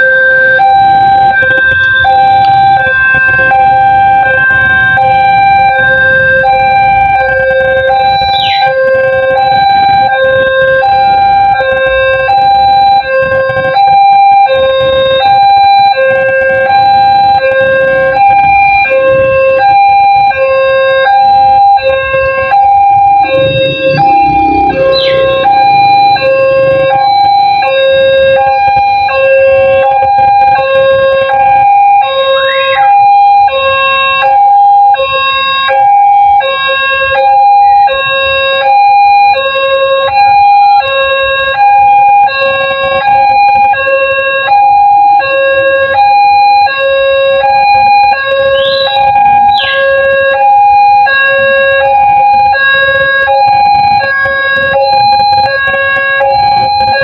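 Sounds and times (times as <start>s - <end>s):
level crossing alarm tones: 0.0s - 57.0s.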